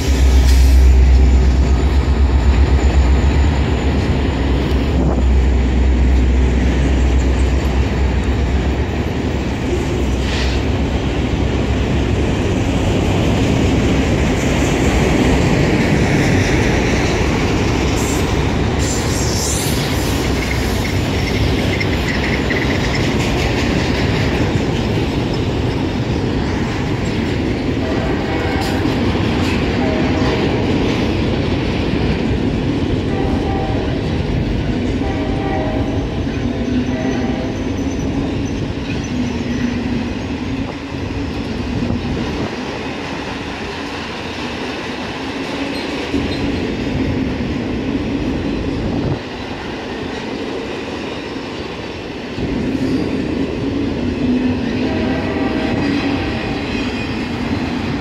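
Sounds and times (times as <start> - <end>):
train wheel squeal: 0.0 - 5.4, 16.1 - 25.9, 35.3 - 40.8, 45.5 - 46.6, 54.5 - 57.7
diesel locomotive engine hum: 0.0 - 58.0
steel wheels clattering on rail: 0.0 - 58.0.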